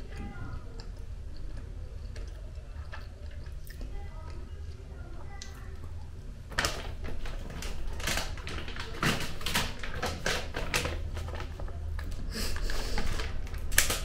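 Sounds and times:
plastic snack packet crinkling: 6.4 - 14.0.

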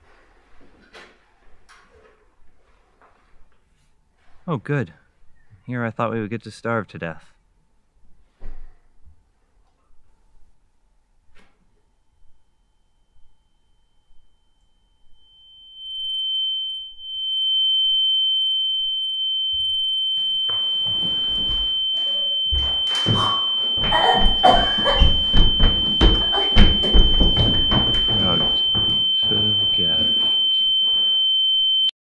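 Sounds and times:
high-pitched ringing tone: 12.0 - 31.9
muffled thumps: 19.6 - 30.4.

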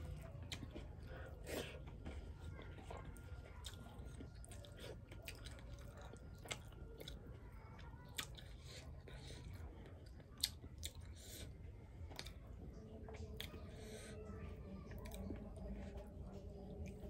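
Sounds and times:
chewing with wet mouth smacks: 0.0 - 17.0.

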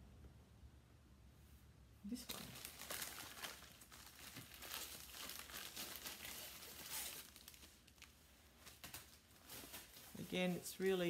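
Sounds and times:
plastic envelope crinkling: 2.1 - 10.9.

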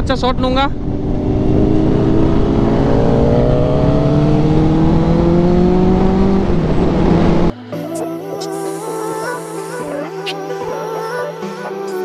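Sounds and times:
wind rumble: 0.0 - 7.5
music: 7.5 - 12.0.

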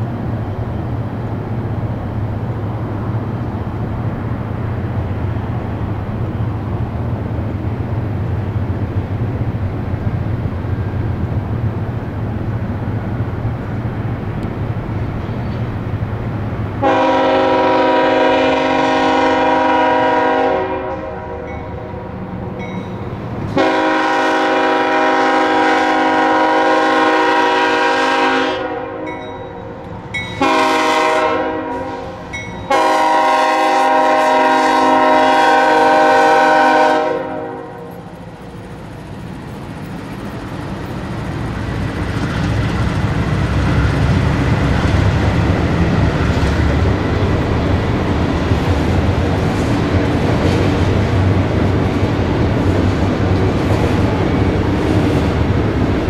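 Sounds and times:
train cars rumbling past: 0.0 - 56.0
locomotive air horn blasts: 16.8 - 22.0, 23.5 - 29.7, 30.4 - 38.1.

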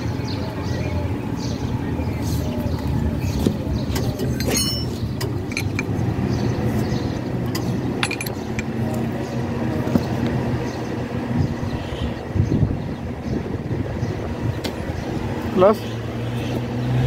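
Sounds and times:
engine hum: 0.0 - 17.0
wrench clinking on fittings: 3.9 - 6.0, 8.0 - 8.7.

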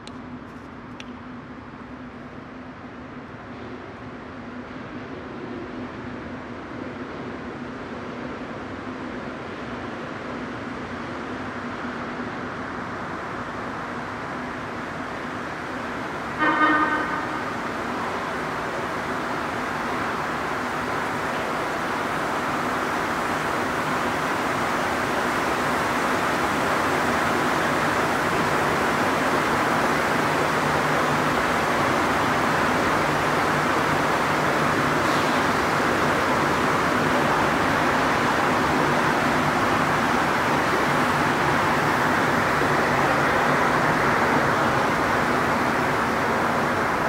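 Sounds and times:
train running noise: 0.0 - 47.0
train horn toot: 16.3 - 17.6.

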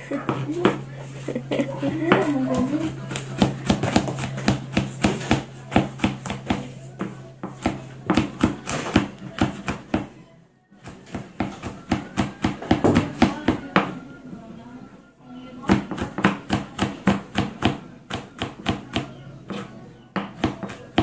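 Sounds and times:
knife chopping on cutting board: 3.1 - 10.1.

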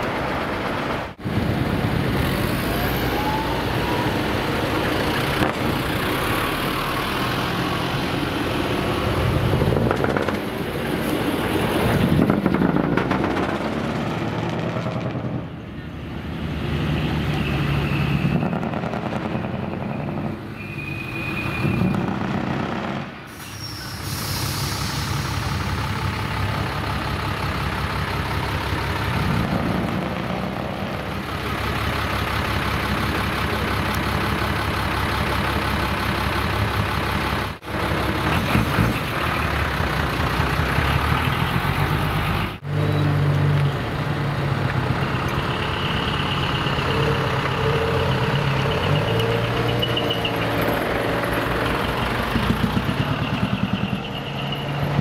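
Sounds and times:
truck diesel engines: 0.0 - 55.0
air brakes hissing: 23.2 - 26.0.

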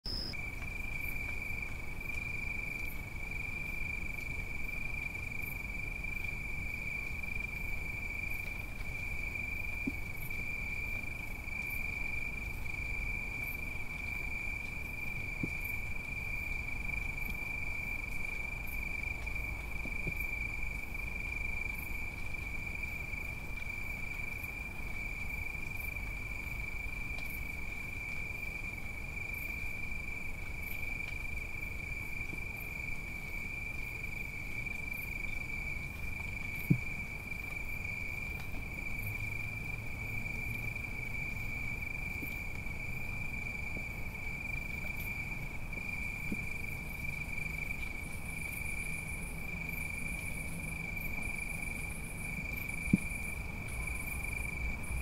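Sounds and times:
cicadas droning: 0.0 - 55.0
low city rumble: 0.0 - 55.0
raindrops dripping: 0.0 - 55.0
faint high pulse: 0.1 - 0.4.

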